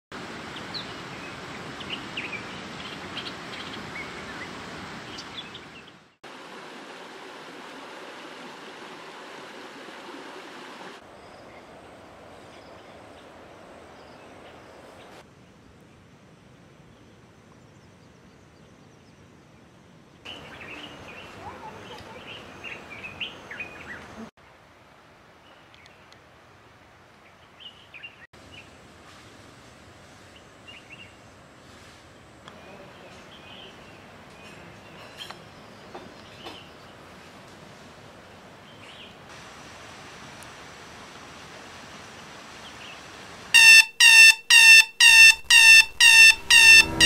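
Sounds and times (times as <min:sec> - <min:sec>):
steady background hiss: 0:35.4 - 0:44.0
birds chirping: 0:43.6 - 0:47.0.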